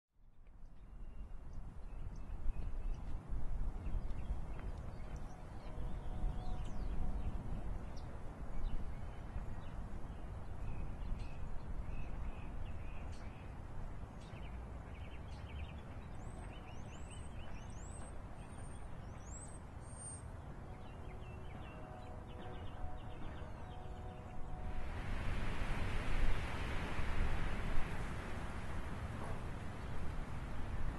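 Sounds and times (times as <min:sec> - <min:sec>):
small birds chirping: 0:14.2 - 0:24.5.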